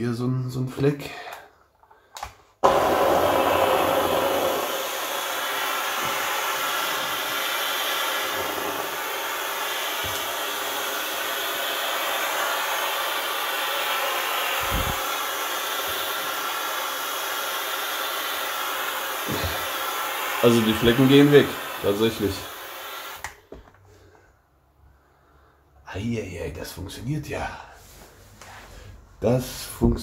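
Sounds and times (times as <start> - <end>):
steam cleaner hissing: 2.6 - 23.3.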